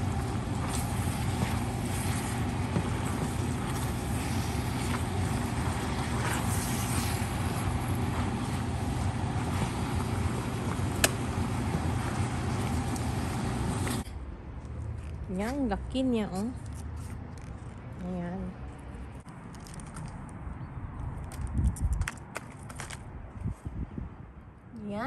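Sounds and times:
stir-fry sizzling in a wok: 0.0 - 14.0
low steady hum: 0.0 - 14.4.

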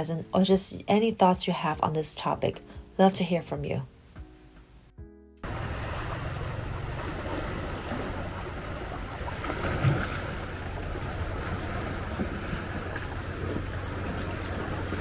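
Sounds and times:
small waves lapping on rocks: 5.5 - 15.0.

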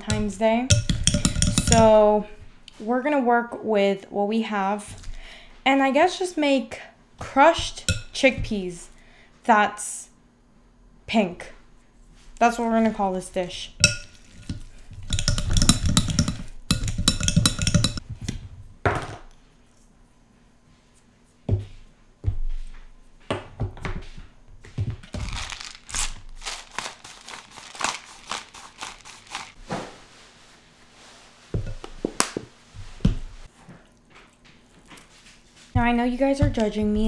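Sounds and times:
utensil scraping glass bowl: 0.0 - 2.1, 13.8 - 18.0
spatula scraping and tapping: 0.0 - 2.2, 7.6 - 8.6, 13.8 - 18.0, 34.9 - 37.0.

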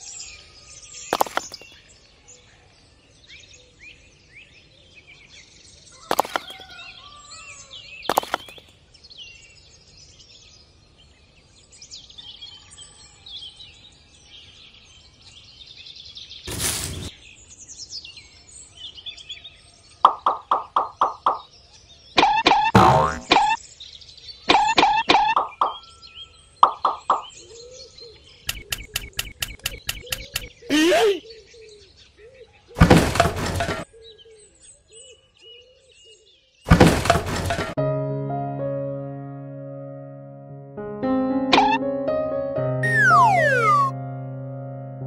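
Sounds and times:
repeated bird calls: 0.0 - 2.2, 5.9 - 8.8, 18.9 - 37.7, 42.8 - 43.9
small birds chirping: 0.0 - 13.0, 14.2 - 36.8, 42.8 - 43.9
rustling burst: 16.5 - 17.1
sharp knocks: 20.1 - 21.4, 24.5 - 25.8, 26.6 - 27.3, 32.8 - 33.8, 36.7 - 37.8.

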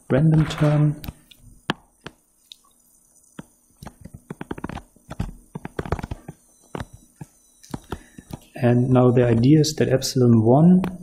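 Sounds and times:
stylus tapping on tablet screen: 3.4 - 8.4.

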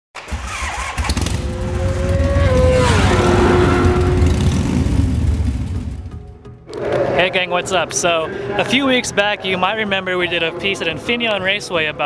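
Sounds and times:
vehicle passing by: 1.1 - 8.6.

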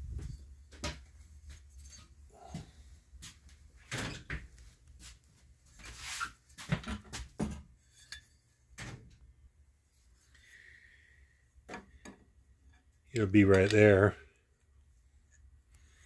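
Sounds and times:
rustling: 4.5 - 6.8.

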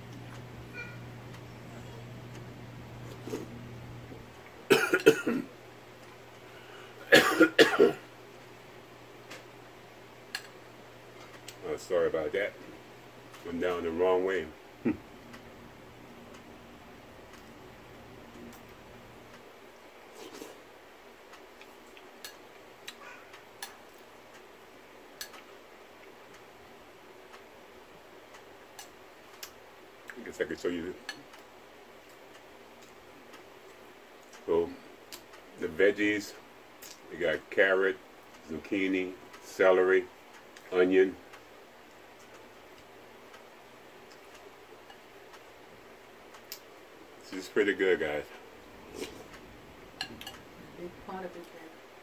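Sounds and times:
man coughing: 4.7 - 5.5, 7.1 - 8.0.

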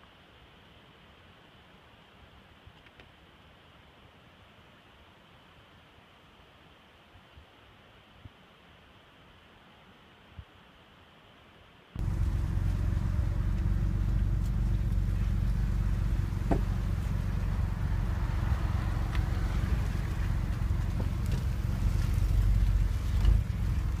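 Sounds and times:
faint click: 2.8 - 3.1
vehicle engine idling: 12.0 - 24.0.

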